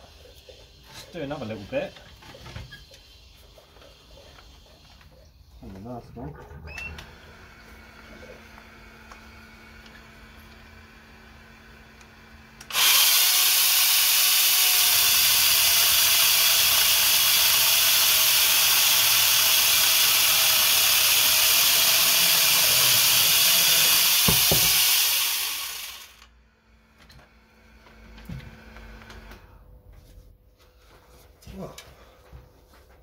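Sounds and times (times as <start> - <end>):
chainsaw motor whining: 12.6 - 26.3.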